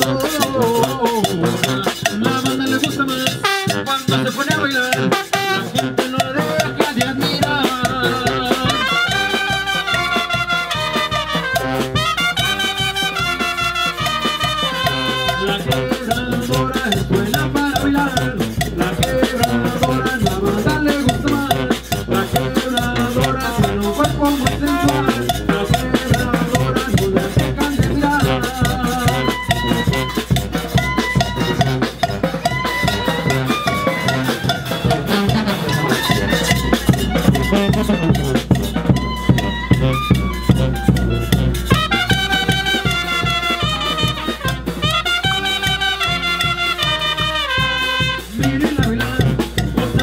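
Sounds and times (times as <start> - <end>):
drum kit and bass drum: 0.0 - 50.0
trumpets and trombones playing: 0.0 - 50.0.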